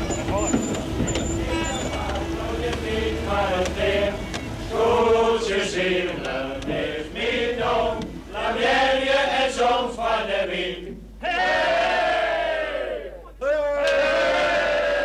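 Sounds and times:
group of people chanting: 1.2 - 13.2.

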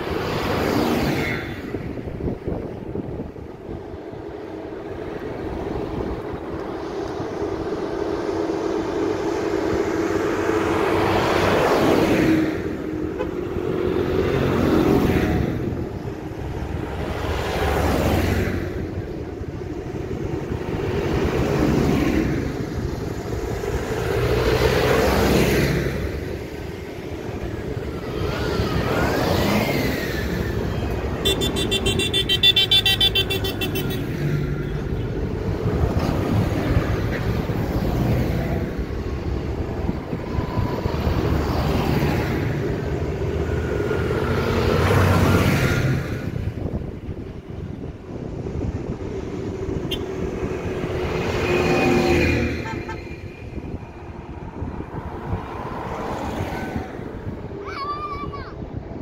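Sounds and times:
tractors driving past: 0.0 - 59.0
horn toot: 31.2 - 34.0.

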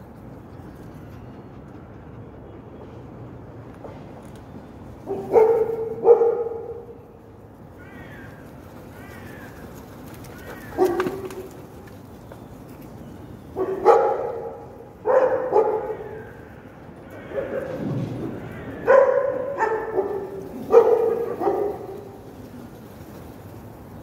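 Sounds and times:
dogs barking: 5.1 - 6.9, 10.4 - 11.6, 13.6 - 22.2
bird calls: 7.8 - 14.6.

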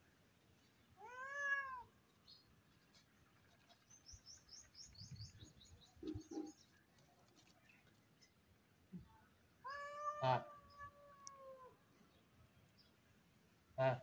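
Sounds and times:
cat meowing: 1.0 - 1.9, 9.6 - 11.7.

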